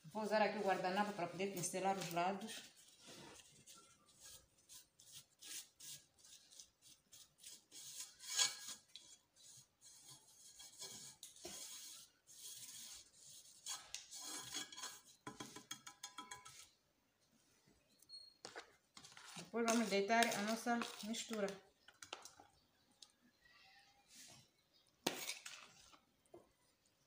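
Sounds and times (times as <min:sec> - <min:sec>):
napkin rubbing frying pan: 0:06.9 - 0:15.6.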